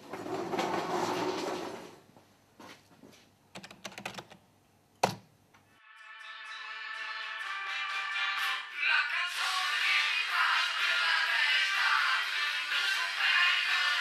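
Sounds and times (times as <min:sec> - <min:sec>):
recorded music: 0:05.8 - 0:14.0.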